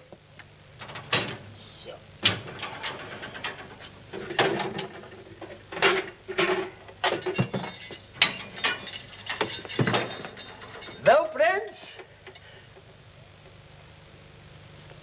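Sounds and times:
metallic clicks and rattles: 0:02.2 - 0:11.1.

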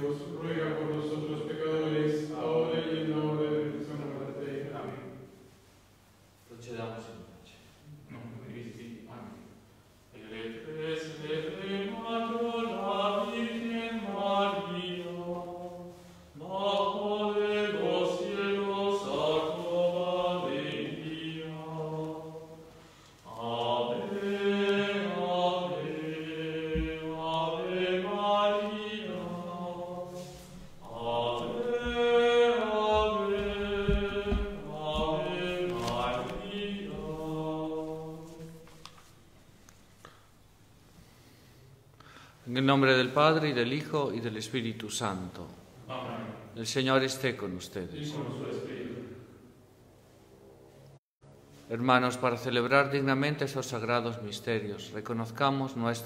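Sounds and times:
chant-like sung hymn: 0:00.0 - 0:05.6, 0:06.6 - 0:39.1, 0:45.8 - 0:49.6.

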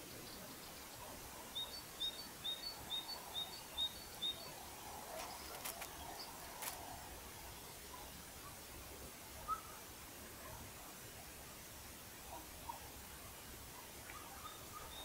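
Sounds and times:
bird chirping: 0:00.0 - 0:06.8
background hiss: 0:00.0 - 0:15.0.

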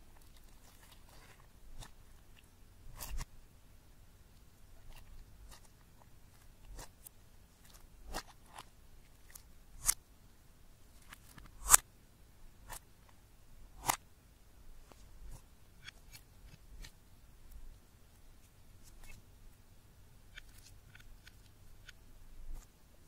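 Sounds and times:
hands squishing slime: 0:00.0 - 0:03.3, 0:04.7 - 0:10.0.

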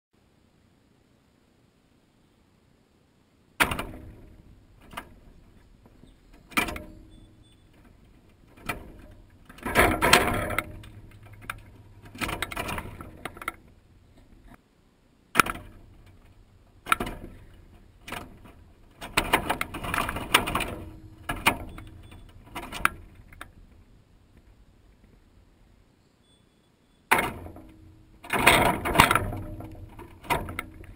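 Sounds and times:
wire feeder rattling: 0:03.6 - 0:14.6, 0:15.4 - 0:23.9, 0:27.1 - 0:30.9.

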